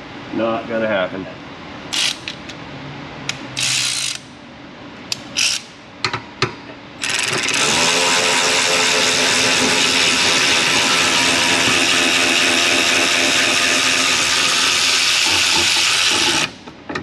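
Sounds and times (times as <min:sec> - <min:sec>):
power ratchet spinning: 0:01.9 - 0:02.4, 0:03.6 - 0:04.2, 0:05.4 - 0:05.7, 0:07.0 - 0:16.6.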